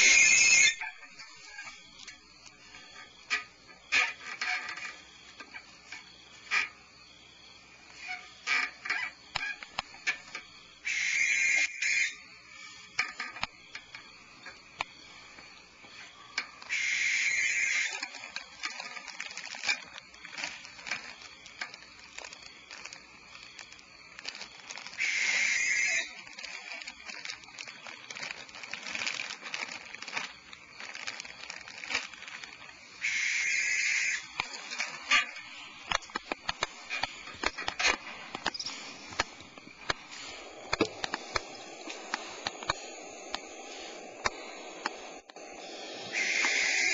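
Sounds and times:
owls hissing: 0:00.0 - 0:01.8, 0:10.8 - 0:12.9, 0:16.6 - 0:19.8, 0:24.7 - 0:30.2, 0:30.9 - 0:35.9, 0:40.0 - 0:46.9
faint scratching and shuffling: 0:17.9 - 0:25.4, 0:26.0 - 0:33.0, 0:34.2 - 0:46.6.

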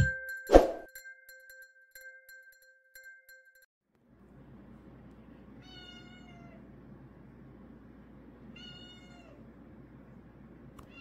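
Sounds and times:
cat meowing faintly: 0:05.6 - 0:06.7, 0:08.5 - 0:09.4.

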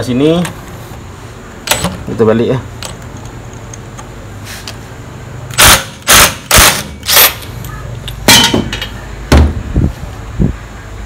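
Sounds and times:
impact driver hammering: 0:05.6 - 0:07.4.

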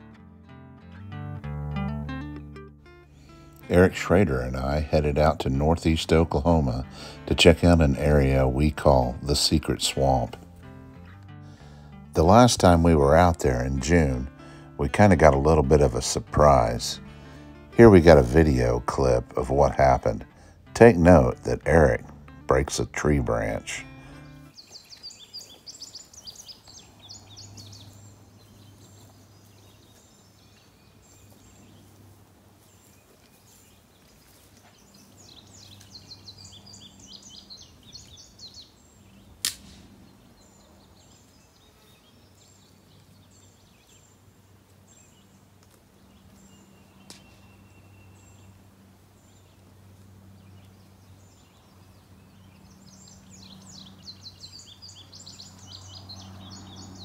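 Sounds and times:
birds chirping: 0:00.0 - 0:57.0
tree branch snapping: 0:39.4 - 0:40.0, 0:47.0 - 0:47.5.

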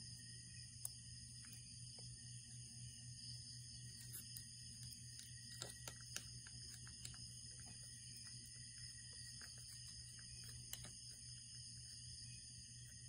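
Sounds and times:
low hum and hiss: 0:00.0 - 0:13.0
faint irregular clicks: 0:03.9 - 0:12.1.

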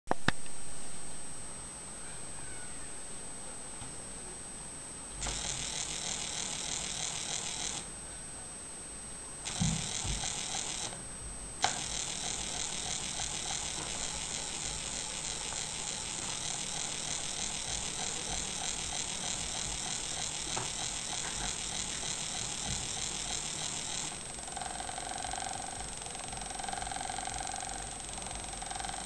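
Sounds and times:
motor starting click: 0:05.2 - 0:07.9, 0:09.5 - 0:11.0, 0:11.6 - 0:29.0
stepper motor ratcheting buzz: 0:05.2 - 0:07.9, 0:09.4 - 0:11.0, 0:11.6 - 0:29.0.

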